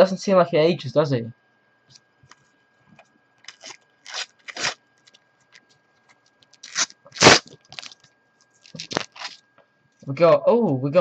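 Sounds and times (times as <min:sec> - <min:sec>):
paper stickers rustling and scraping: 0:03.4 - 0:09.4.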